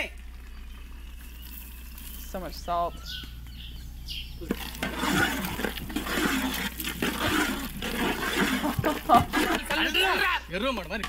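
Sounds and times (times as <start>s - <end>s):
faint bird chirps: 0.0s - 4.5s
curry bubbling in a pan: 4.3s - 10.4s.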